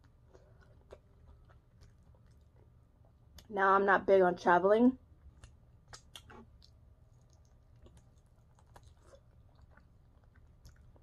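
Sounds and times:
person chewing: 0:00.0 - 0:03.5, 0:05.2 - 0:11.0.

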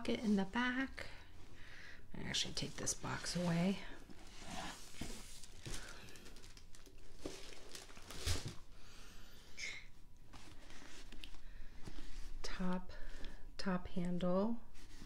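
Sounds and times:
tissue paper rustling: 0:02.4 - 0:08.7.

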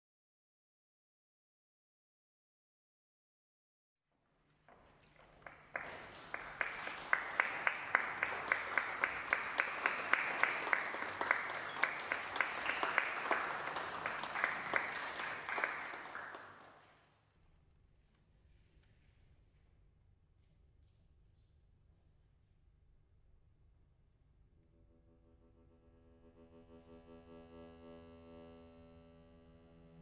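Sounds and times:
audience applauding: 0:04.8 - 0:17.0.

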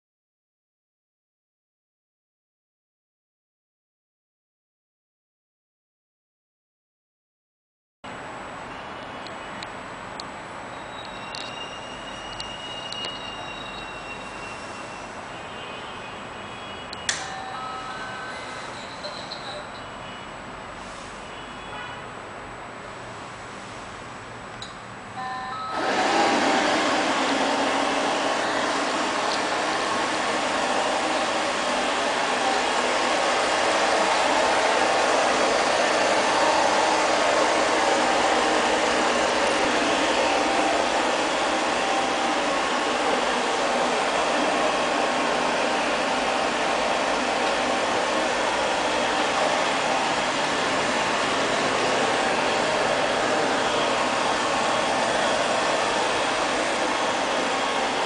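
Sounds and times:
robot vacuum cleaner whirring: 0:25.7 - 0:58.0.

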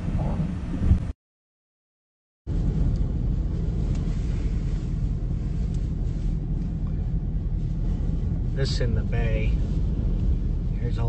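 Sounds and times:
strong wind buffeting phone: 0:02.5 - 0:11.0.

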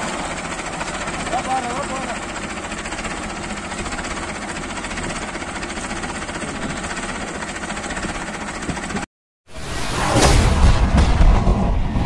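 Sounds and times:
tractor diesel engine running: 0:00.0 - 0:09.1.

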